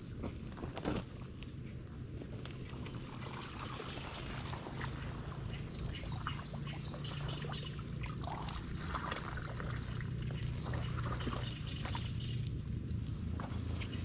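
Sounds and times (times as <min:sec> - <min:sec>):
steady low hum: 0:00.0 - 0:14.0
water splashing and trickling: 0:02.6 - 0:12.4.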